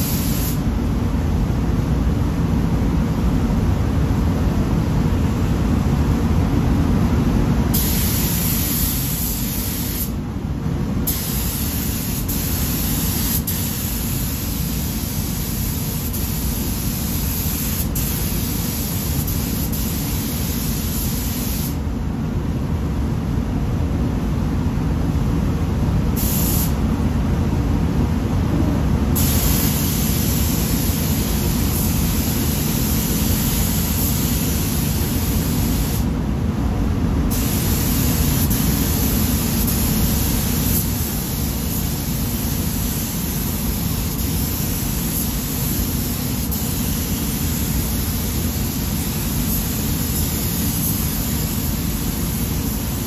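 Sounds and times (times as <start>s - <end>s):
paint spray gun hissing: 0.0s - 0.6s, 7.8s - 10.2s, 11.1s - 21.8s, 26.2s - 26.8s, 29.2s - 36.1s, 37.3s - 53.0s.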